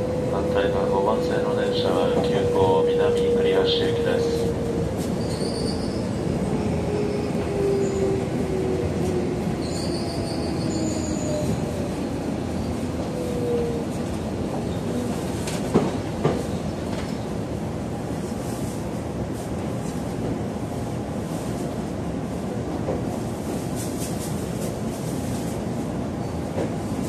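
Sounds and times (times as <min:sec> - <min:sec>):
high-pitched brake squeals: 0:05.2 - 0:06.2, 0:09.6 - 0:11.6.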